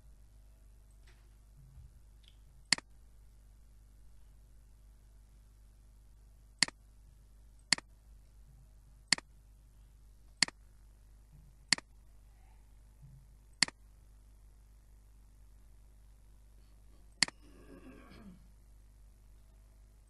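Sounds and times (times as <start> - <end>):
computer mouse clicks: 2.2 - 2.9, 7.6 - 7.9.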